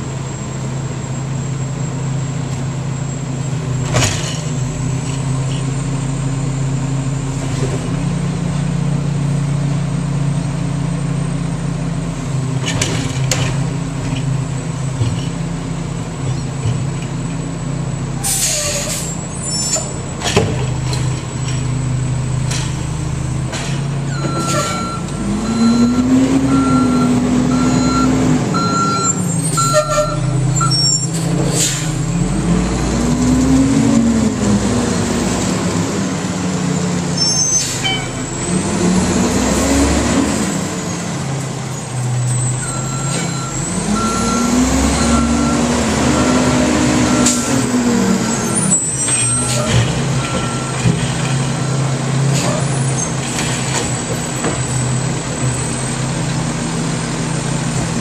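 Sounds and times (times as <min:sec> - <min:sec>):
garbage truck engine revving: 0:02.0 - 0:58.0
air brake hisses and bangs: 0:18.2 - 0:20.4, 0:31.2 - 0:32.0
backup alarm beeping: 0:24.2 - 0:30.9.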